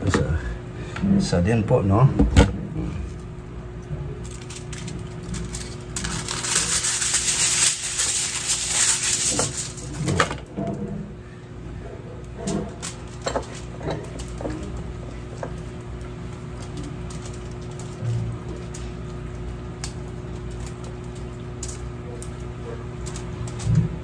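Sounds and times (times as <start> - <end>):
aluminium foil crinkling: 2.8 - 10.5, 12.4 - 24.0.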